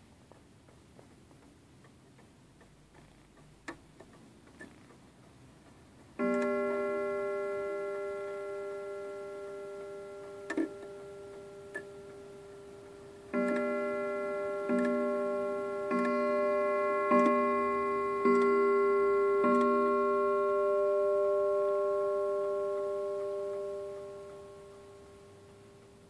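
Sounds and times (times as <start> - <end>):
clock ticking faintly: 0.0 - 26.0
clock mechanism clicks: 0.2 - 26.0
clock gong strike ringing: 6.2 - 26.0.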